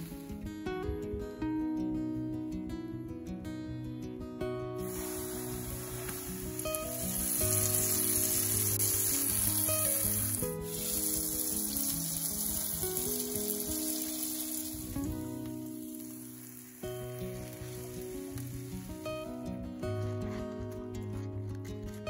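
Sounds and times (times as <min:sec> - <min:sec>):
food sizzling in oil: 0:00.0 - 0:00.4, 0:04.8 - 0:19.8
soft background music: 0:00.0 - 0:22.0.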